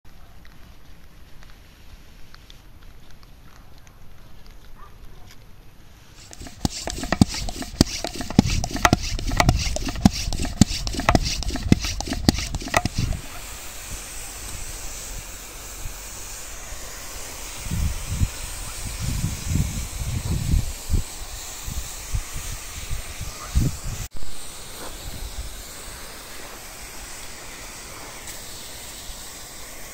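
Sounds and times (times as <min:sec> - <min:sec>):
hand pump knocking: 0:06.2 - 0:13.3
sprayer hissing: 0:06.2 - 0:29.9.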